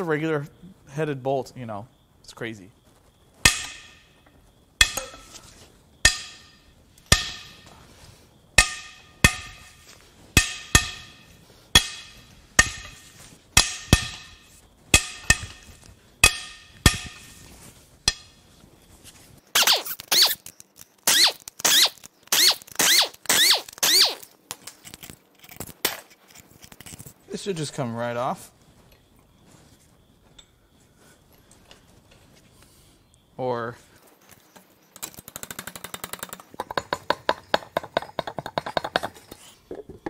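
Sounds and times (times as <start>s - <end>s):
bolts cracking loose with metallic ring: 3.4s - 4.1s, 4.8s - 5.4s, 6.0s - 7.7s, 8.6s - 9.8s, 10.4s - 17.2s
air impact wrench spinning: 21.1s - 24.3s.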